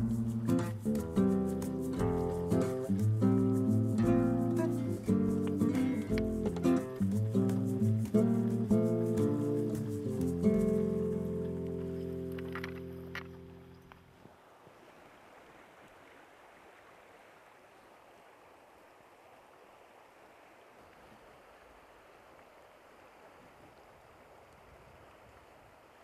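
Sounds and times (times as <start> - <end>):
background music: 0.0 - 13.2
river flowing over stones: 0.0 - 26.0.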